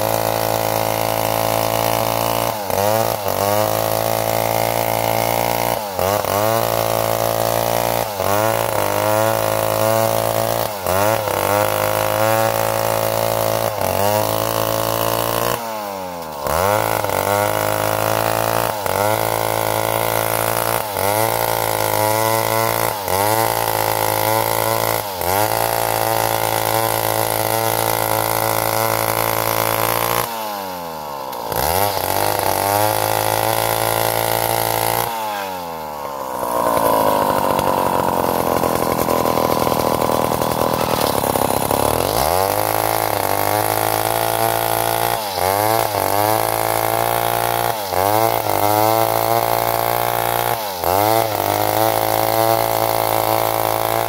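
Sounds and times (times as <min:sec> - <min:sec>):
chainsaw cutting timber: 0:00.0 - 0:54.0.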